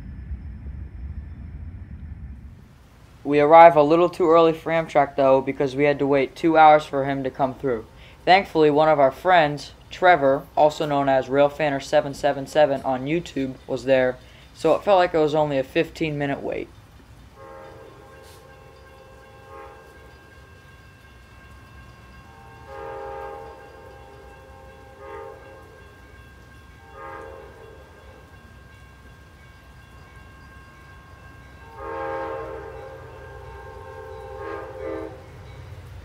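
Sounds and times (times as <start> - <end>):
train air horn blasts: 17.4 - 20.5, 22.2 - 26.1, 26.7 - 28.4, 31.6 - 35.6.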